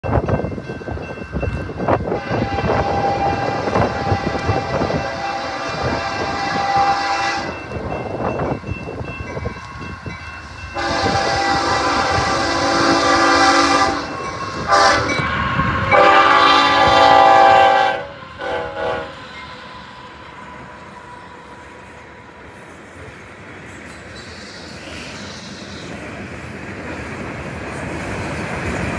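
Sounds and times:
train rumbling on rails: 0.0 - 28.9
train air horn blasts: 2.0 - 7.8, 10.8 - 19.4.

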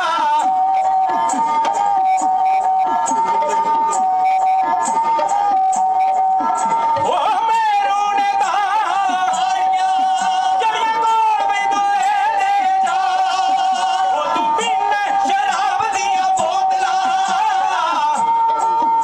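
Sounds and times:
men singing folk song: 0.0 - 1.5, 7.0 - 19.0
bowed sarangi melody: 0.0 - 19.0.

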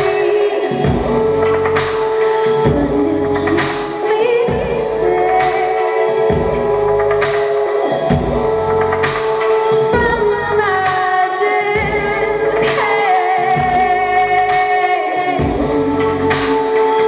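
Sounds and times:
sustained synth tones: 0.0 - 17.0
woman singing into a microphone: 0.0 - 17.0
low pulsing bass: 0.8 - 2.1, 2.7 - 3.6, 6.3 - 7.2, 8.1 - 9.3, 10.0 - 10.9, 11.8 - 12.7, 13.6 - 14.6, 15.4 - 16.6.

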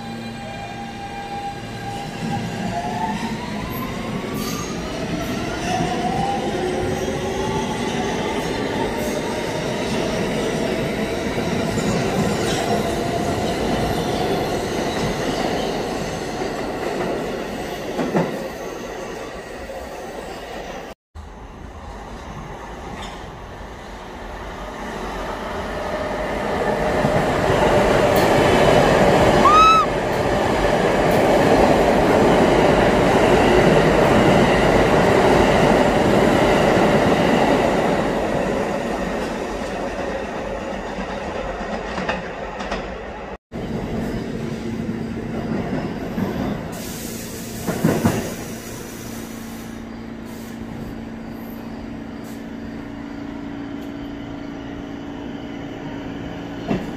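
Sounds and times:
subway train wheels rumbling on rails: 0.0 - 56.9
train approaching: 0.0 - 56.9.

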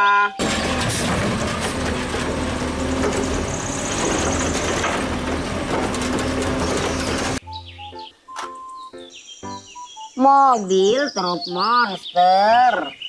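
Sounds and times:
diesel engine running: 0.4 - 7.4.

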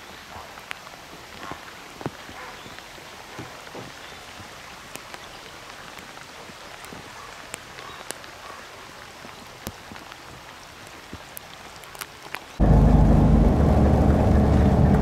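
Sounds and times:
rain hissing on water: 0.0 - 15.0.

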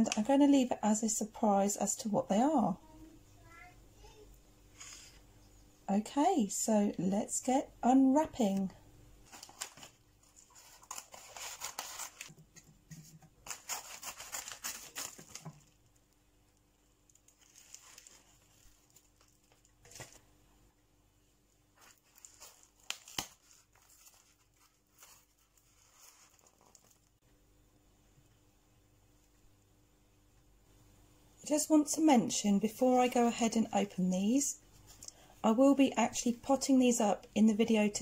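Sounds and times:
packing material crinkling: 9.2 - 12.3, 13.4 - 16.0, 17.0 - 20.2, 21.8 - 27.2
scissors cutting envelope: 9.3 - 12.3, 13.4 - 15.4.

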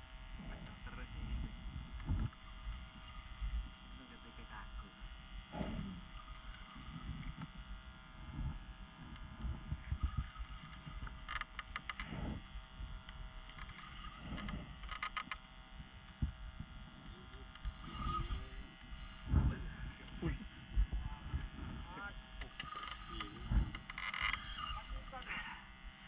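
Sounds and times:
wind and water rumble: 0.0 - 4.2, 5.1 - 25.3
boat engine humming: 0.0 - 26.0
fishing reel clicking: 2.6 - 3.7, 6.2 - 7.6, 10.0 - 12.1, 13.0 - 15.5, 17.5 - 19.4, 22.4 - 25.5.

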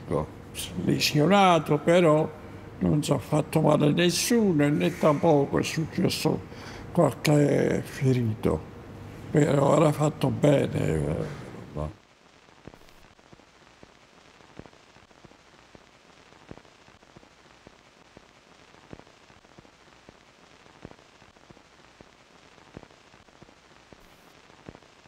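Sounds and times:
record surface hiss: 0.0 - 25.0
record clicks and pops: 12.4 - 25.0.

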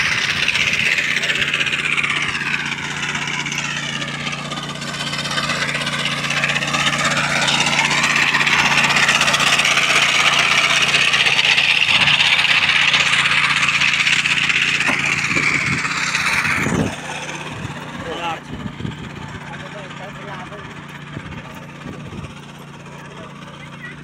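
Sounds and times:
small petrol engine buzzing: 0.0 - 24.0.

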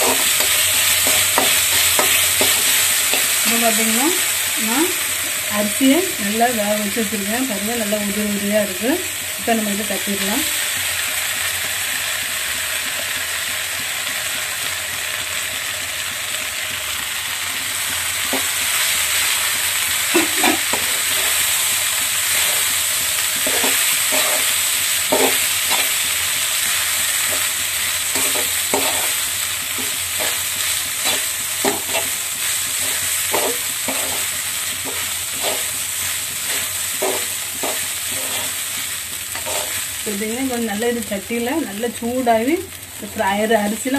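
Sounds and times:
metal spatula scraping a pan: 0.0 - 3.4, 20.1 - 21.5, 22.2 - 26.1, 27.2 - 39.9
rice sizzling in a pan: 0.0 - 43.9.

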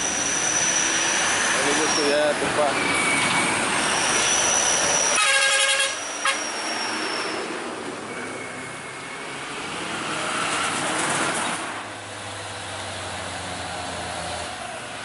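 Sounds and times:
diesel trucks driving past: 0.0 - 15.0
truck horn: 5.1 - 6.5.

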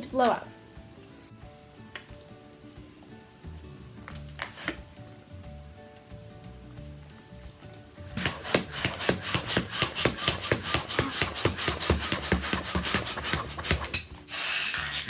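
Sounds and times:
balloon squeaky rubbing: 4.4 - 4.9, 8.2 - 15.0
short hissing rush: 4.4 - 4.9, 8.2 - 14.9.

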